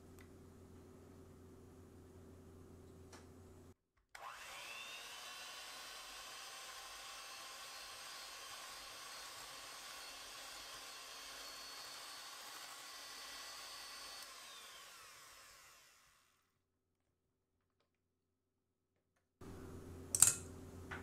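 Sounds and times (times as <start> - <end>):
electric hand mixer whirring: 4.2 - 16.5.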